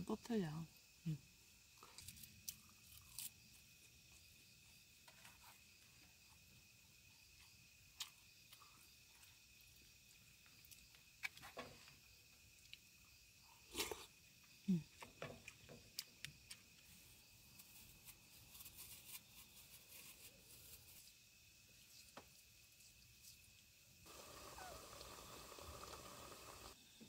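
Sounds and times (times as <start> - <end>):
quiet eating sounds: 7.3 - 18.1, 23.2 - 26.8.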